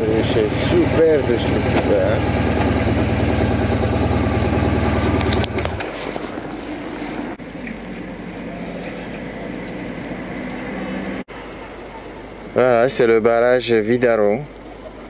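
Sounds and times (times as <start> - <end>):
motorcycle engine running: 0.0 - 11.2.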